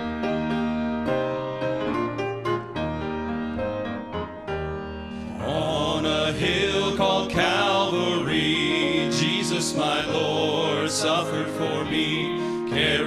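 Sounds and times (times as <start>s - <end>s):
piano: 0.0s - 13.0s
men singing in harmony: 5.2s - 13.0s.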